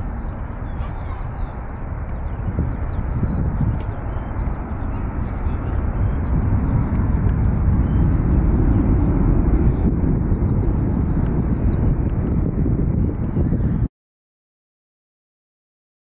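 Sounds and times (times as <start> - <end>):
birds chirping faintly: 0.0 - 12.0
jet engines rumbling: 0.0 - 13.9.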